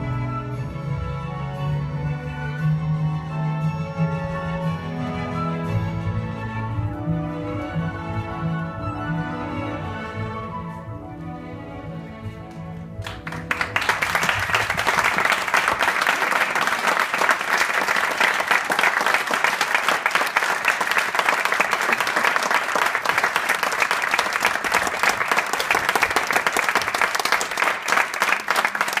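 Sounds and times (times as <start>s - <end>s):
classical music: 0.0s - 29.0s
audience applauding: 13.0s - 29.0s.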